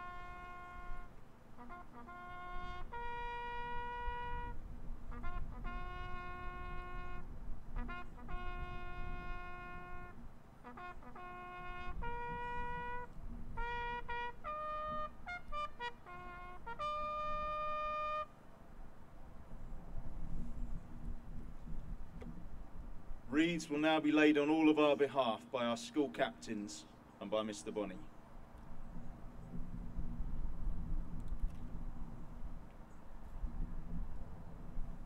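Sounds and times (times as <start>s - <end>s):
solo bugle call: 0.0s - 18.4s.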